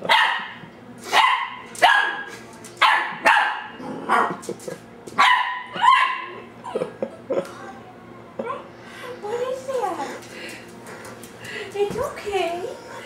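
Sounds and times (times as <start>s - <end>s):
puppy barking: 0.0s - 4.4s, 5.2s - 6.5s.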